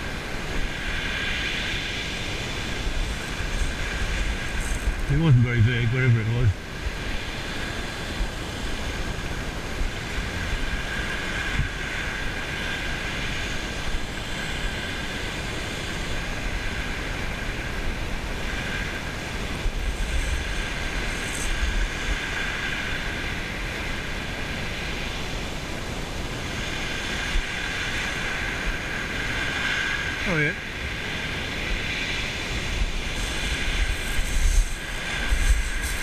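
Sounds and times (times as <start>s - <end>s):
fishing reel whirring: 0.7s - 6.3s, 19.8s - 23.2s, 32.5s - 36.0s.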